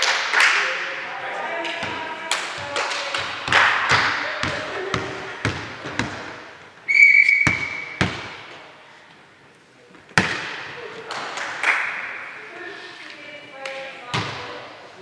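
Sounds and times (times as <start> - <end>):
volleyball bouncing on hall floor: 1.6 - 8.8, 10.0 - 12.3, 13.6 - 14.7
short whistle blast: 6.9 - 8.0.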